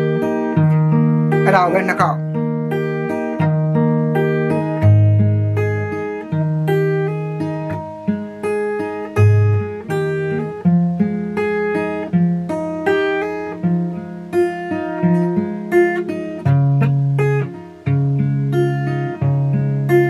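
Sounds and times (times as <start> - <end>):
fingerpicked acoustic guitar: 0.0 - 20.0.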